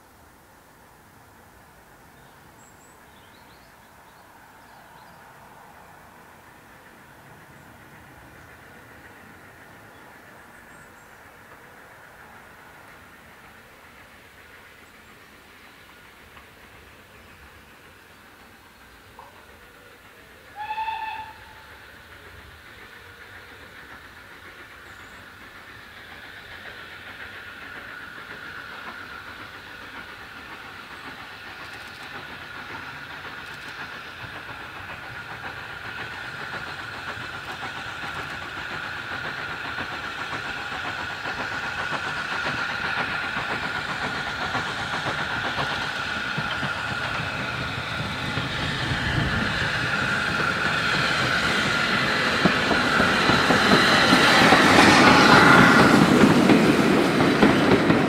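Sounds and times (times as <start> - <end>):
steam train rushing and rumbling: 0.0 - 58.0
steam whistle toot: 20.5 - 21.7.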